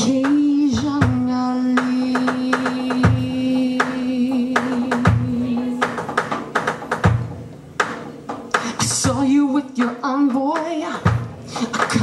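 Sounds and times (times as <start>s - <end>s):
kick drum: 0.8s - 1.4s.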